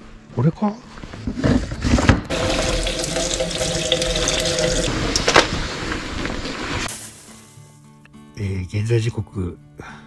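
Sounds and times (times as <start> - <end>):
tap water running into metal sink: 2.3 - 5.4.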